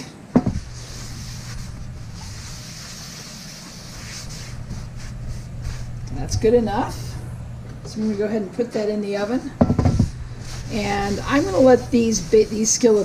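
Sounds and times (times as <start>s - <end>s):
steady low hum: 0.0s - 13.0s
paper towel rubbing on skillet: 0.5s - 7.1s, 9.8s - 13.0s.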